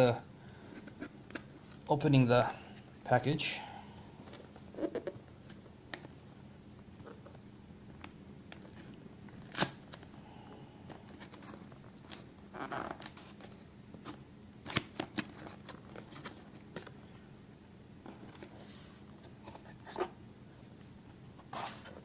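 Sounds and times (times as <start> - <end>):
cardboard rustle: 21.4 - 22.0.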